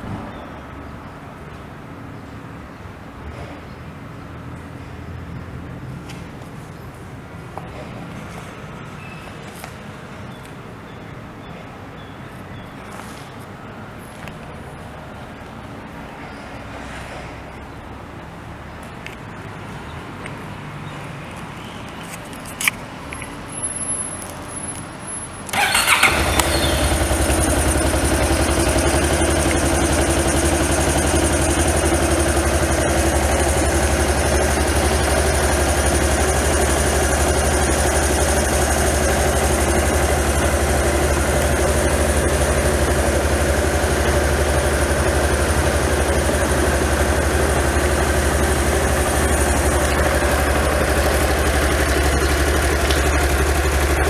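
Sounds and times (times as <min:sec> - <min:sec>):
motorcycle engine cranking and idling: 0:25.4 - 0:54.0.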